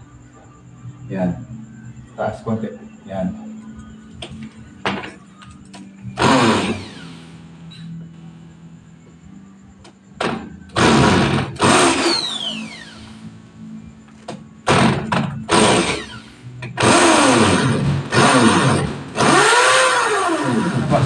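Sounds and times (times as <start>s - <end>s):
electric drill boring into wall: 6.2s - 7.2s, 10.3s - 13.2s, 14.7s - 21.0s.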